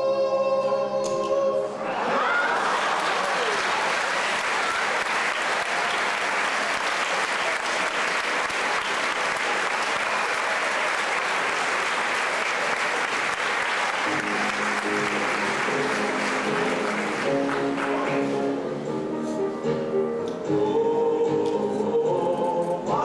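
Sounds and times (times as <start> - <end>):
audience applauding: 2.1 - 18.6.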